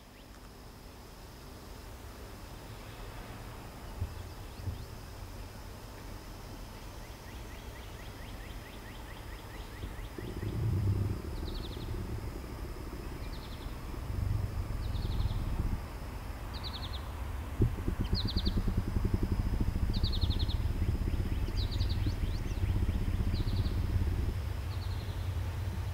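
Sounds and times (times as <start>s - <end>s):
high-pitched insect buzz: 2.7s - 25.9s
bird chirping: 7.0s - 25.9s
low rumble: 9.8s - 25.9s.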